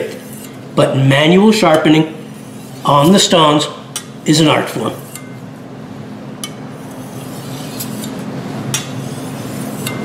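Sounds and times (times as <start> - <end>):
knife scraping on sharpening stone: 0.1 - 0.6, 4.9 - 5.4, 6.4 - 10.0.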